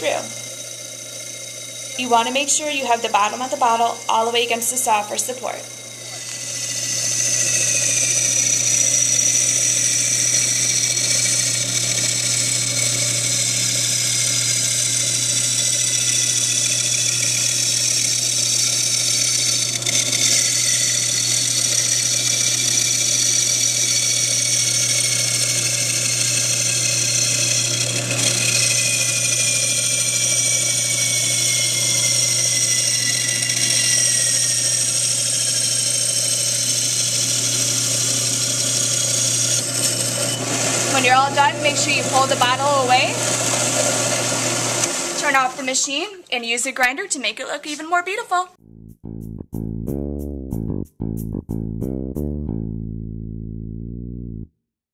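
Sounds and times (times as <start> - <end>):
high tone sliding down: 0.0 - 11.0
bandsaw motor hum: 0.0 - 46.2
high grinding whine: 0.0 - 46.3.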